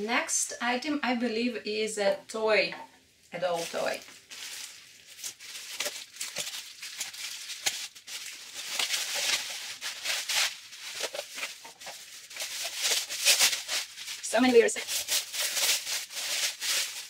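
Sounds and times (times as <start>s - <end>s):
plastic packaging crinkling: 3.4s - 17.0s
scissors cutting plastic: 5.1s - 17.0s.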